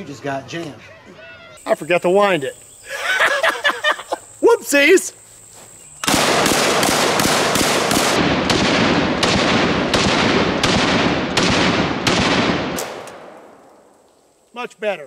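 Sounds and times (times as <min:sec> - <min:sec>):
shotgun shots: 0:06.0 - 0:13.9.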